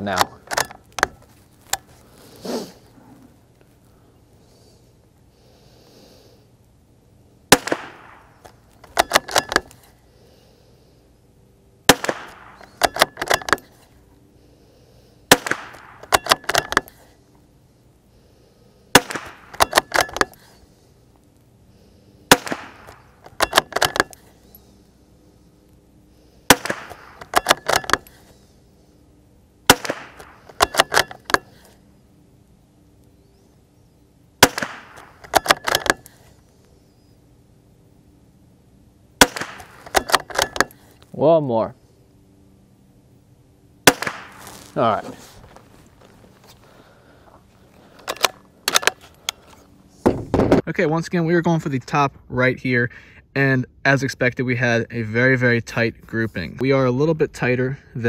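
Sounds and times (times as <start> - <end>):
metallic bolt action clicks: 0.1 - 1.8, 8.8 - 9.8, 12.5 - 13.7, 15.8 - 17.0, 22.8 - 24.2, 27.1 - 28.1, 30.2 - 31.5, 34.9 - 36.1, 39.8 - 40.8, 48.0 - 49.0
rifle shots: 7.5 - 9.7, 11.9 - 13.6, 15.3 - 16.8, 18.9 - 20.3, 22.3 - 24.1, 26.5 - 28.1, 29.7 - 31.4, 34.4 - 36.0, 39.2 - 40.7, 43.8 - 44.6.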